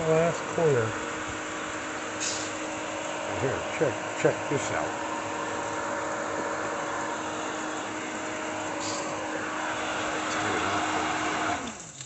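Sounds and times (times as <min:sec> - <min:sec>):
constant hiss: 0:00.0 - 0:12.0
pool pump motor humming: 0:00.0 - 0:12.0.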